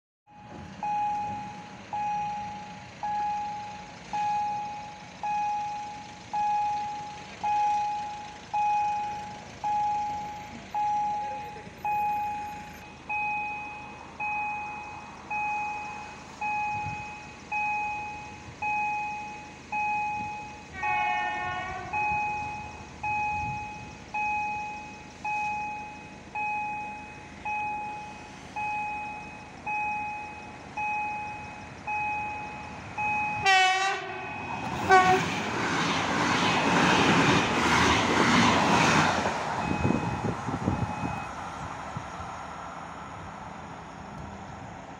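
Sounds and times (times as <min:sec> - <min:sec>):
level-crossing warning bell: 0:00.3 - 0:35.3, 0:39.4 - 0:41.5
electric train horn: 0:20.7 - 0:22.2, 0:33.4 - 0:35.4.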